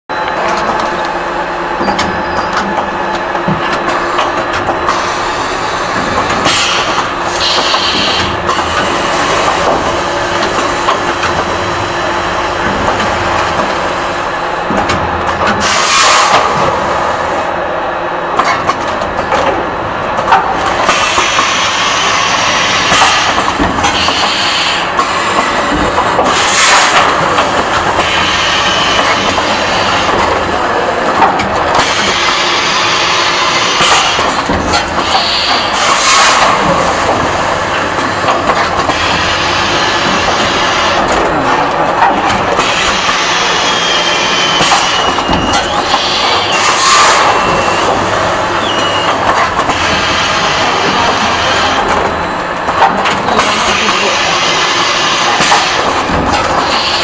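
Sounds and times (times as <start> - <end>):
pneumatic air hissing: 6.4 - 8.4
machine mechanical clatter: 18.4 - 57.0.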